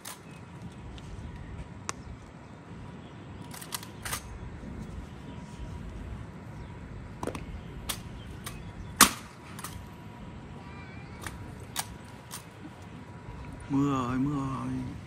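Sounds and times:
low steady background noise: 0.0s - 15.0s.

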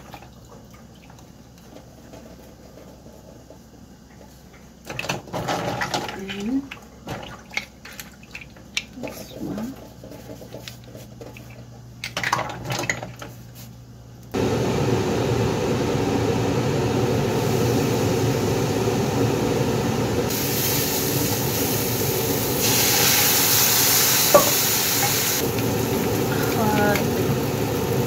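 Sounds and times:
range hood fan running: 8.8s - 28.0s
frying hiss in wok: 14.4s - 28.0s.

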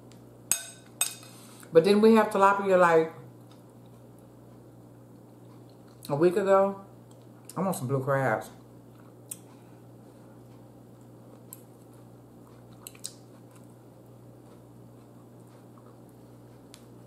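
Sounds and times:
steady low hum: 0.0s - 17.0s
quiet chewing: 3.4s - 6.1s, 8.6s - 17.0s.

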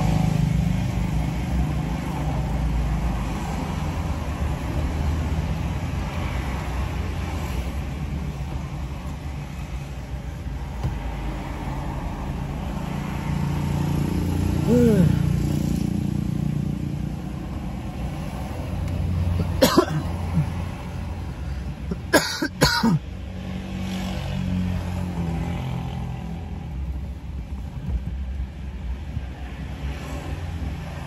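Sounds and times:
person coughing: 19.4s - 20.6s, 21.9s - 23.0s.

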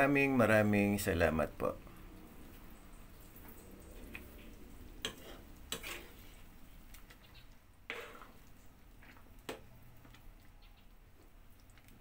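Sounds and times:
ladle stirring a pot: 2.5s - 12.0s.

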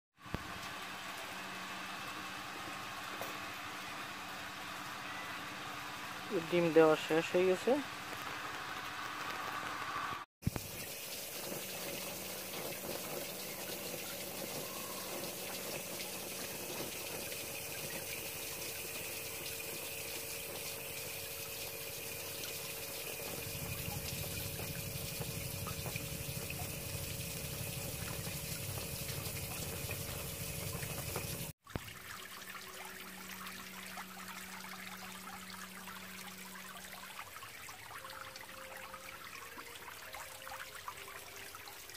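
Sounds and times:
water running: 6.2s - 41.9s.

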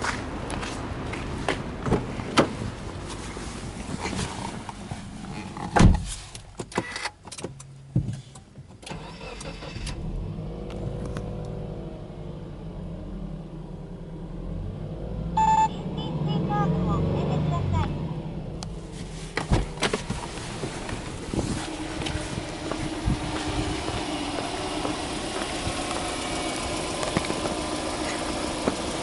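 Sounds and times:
car engine cranking and idling: 0.0s - 29.0s
short electronic beep: 15.4s - 17.6s
footsteps: 18.9s - 27.7s
heavy thump: 19.3s - 24.1s.

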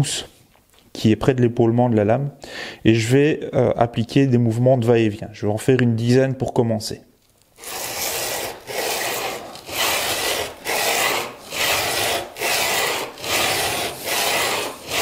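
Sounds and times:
chisel scraping on sandpaper: 7.6s - 15.0s.

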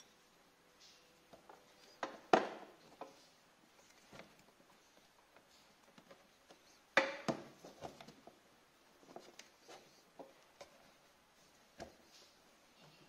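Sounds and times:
rustling of handled wiring: 2.8s - 13.0s.

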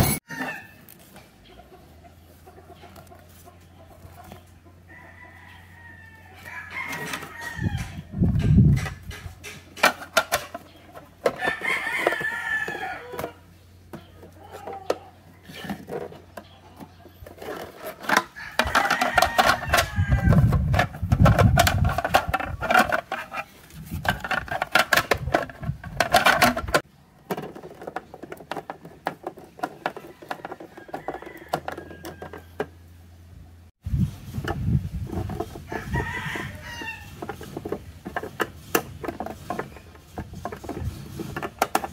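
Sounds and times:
roosters crowing: 0.0s - 1.1s, 4.0s - 8.5s, 10.4s - 16.4s, 17.4s - 28.1s, 29.2s - 33.0s, 35.1s - 41.9s
chickens clucking: 0.0s - 32.9s.

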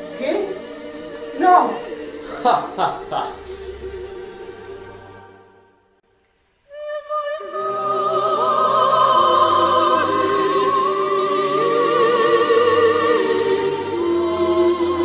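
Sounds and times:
low musical accompaniment: 0.0s - 5.8s
operatic singing with vibrato: 0.0s - 5.9s, 6.7s - 15.0s.

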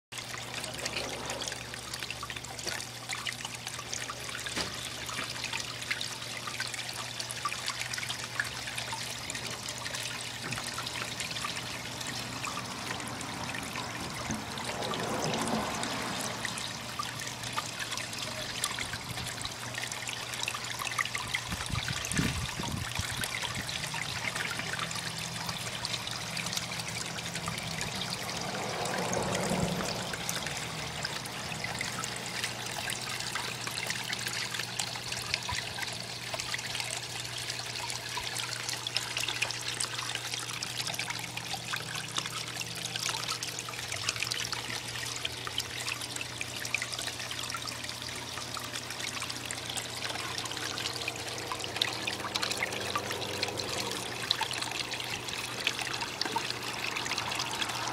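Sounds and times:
water splashing into a tank: 0.1s - 57.9s.

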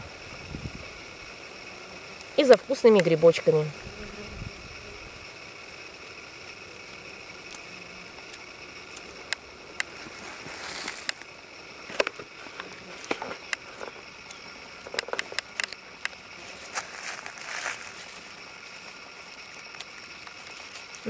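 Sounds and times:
rustling dry grass and leaves: 4.2s - 21.0s.

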